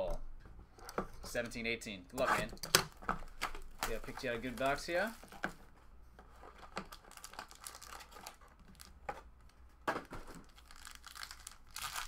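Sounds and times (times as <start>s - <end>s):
wrapper crinkling: 6.6s - 9.5s, 10.2s - 12.0s.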